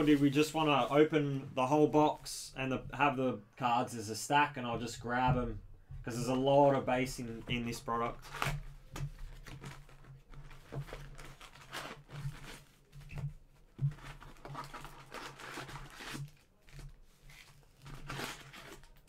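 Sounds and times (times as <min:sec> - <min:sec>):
packaging rustling and tearing: 0:08.2 - 0:19.0.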